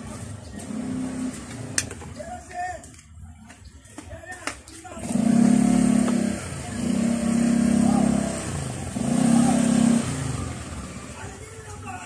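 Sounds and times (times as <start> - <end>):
motorcycle engine revving: 0.0 - 1.9, 4.9 - 11.5.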